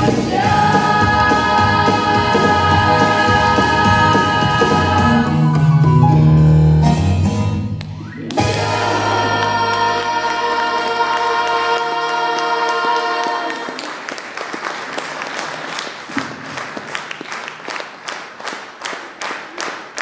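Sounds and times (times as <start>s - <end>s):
rhythmic clapping in unison: 0.0s - 5.2s, 7.8s - 20.0s
choir holding a chord: 0.0s - 5.5s, 8.4s - 13.8s
audience applause: 11.5s - 20.0s.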